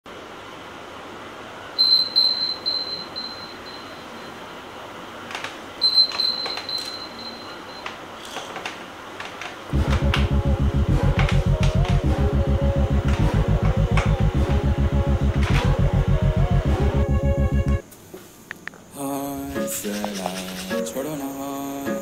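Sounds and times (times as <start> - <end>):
phone alarm beeping: 1.8 - 4.3, 5.8 - 7.9
music with heavy pulsing beat: 9.7 - 17.8.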